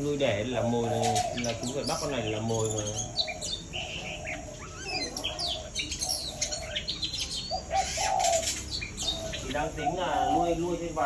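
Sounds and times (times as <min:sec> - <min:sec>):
songbirds chirping and whistling: 0:00.0 - 0:11.0
low cooing call: 0:00.6 - 0:10.6.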